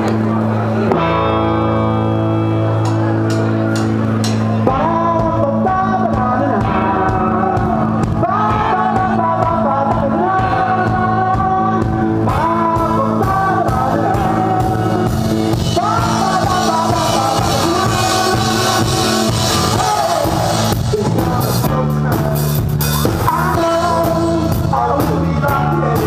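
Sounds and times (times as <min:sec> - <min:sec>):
bass guitar: 0:00.0 - 0:26.0
electric guitar: 0:00.0 - 0:26.0
person singing: 0:00.0 - 0:26.0
drum kit with crashing cymbals: 0:14.4 - 0:25.3.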